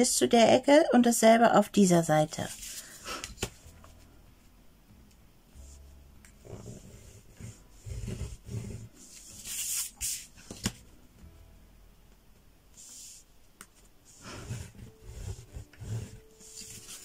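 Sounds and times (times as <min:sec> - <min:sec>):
tool scraping along a ruler: 0:06.4 - 0:08.9, 0:14.2 - 0:17.0
paper and ruler sliding on table: 0:06.4 - 0:10.6, 0:14.1 - 0:17.0.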